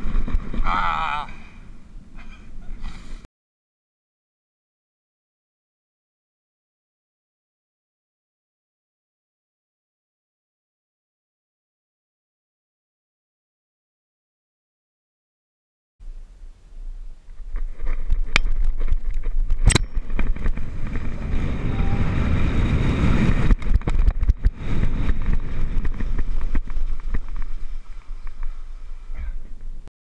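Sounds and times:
wind rushing on microphone: 0.0s - 3.2s, 16.1s - 29.9s.

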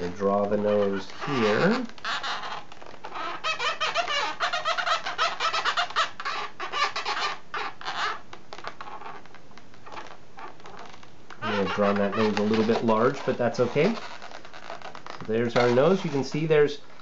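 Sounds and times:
marker squeaking on balloon: 0.0s - 17.0s.

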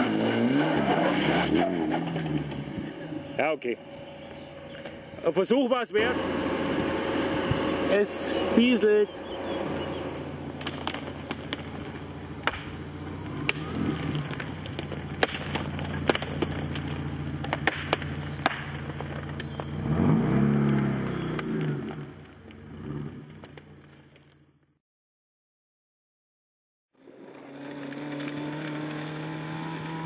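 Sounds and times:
off-road vehicle engine at low revs: 0.0s - 24.8s, 27.0s - 30.0s
twigs cracking under tyres: 9.2s - 24.7s, 27.0s - 30.0s.

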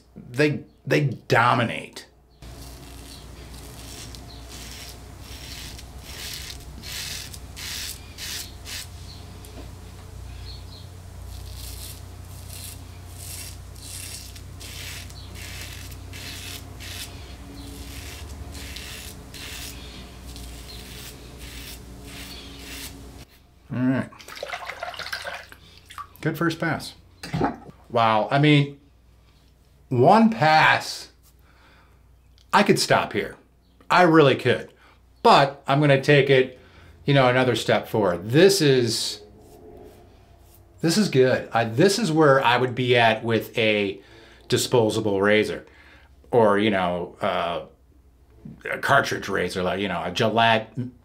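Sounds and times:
razor scraping stubble: 2.4s - 9.6s, 10.7s - 23.3s.

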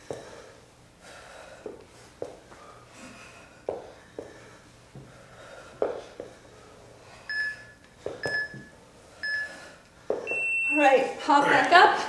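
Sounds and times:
timer beeping: 7.3s - 9.6s, 10.2s - 11.0s.

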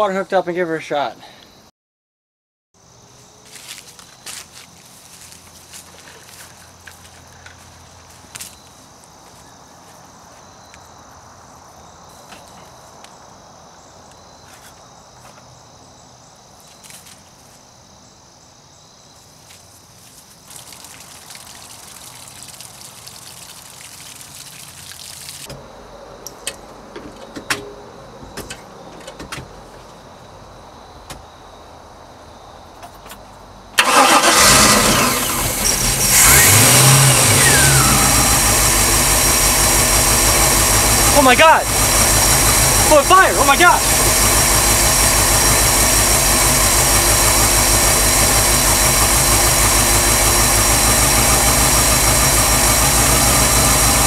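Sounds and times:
crickets chirping: 0.0s - 1.7s, 2.8s - 34.5s, 35.3s - 46.0s
water splashing from hose: 20.0s - 25.5s, 35.5s - 54.0s
boat engine running loudly: 35.0s - 54.0s.

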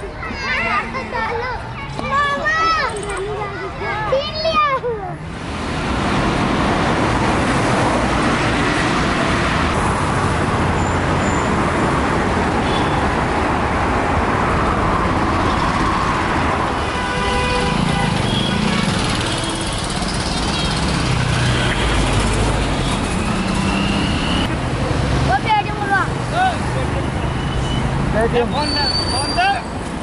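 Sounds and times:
cars and motorcycles passing: 0.0s - 30.0s
vehicle horn: 12.6s - 13.0s, 16.8s - 19.9s.

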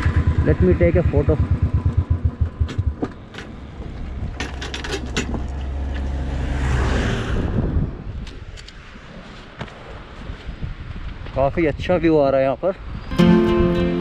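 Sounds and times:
motorcycle engine thumping: 0.0s - 5.5s
passing vehicle rumble: 0.0s - 8.2s
sharp clicks and knocks: 2.3s - 3.6s, 4.3s - 6.1s.

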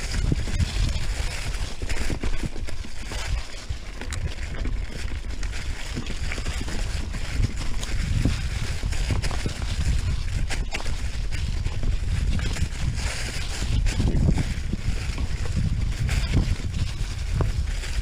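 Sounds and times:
bike rattling over bumps: 0.0s - 18.0s
bike tyres rolling through leaves: 0.0s - 18.0s
wind rumbling on microphone: 0.0s - 18.0s.

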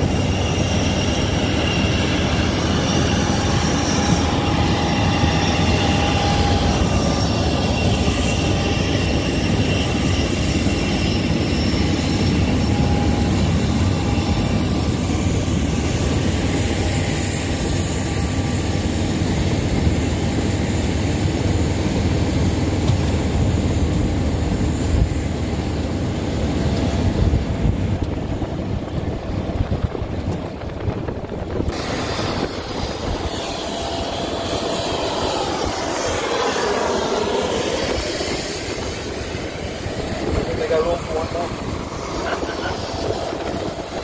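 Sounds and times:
jet engines whining: 0.0s - 44.0s
wind on microphone: 26.5s - 44.0s
sweeping tone: 31.7s - 44.0s.

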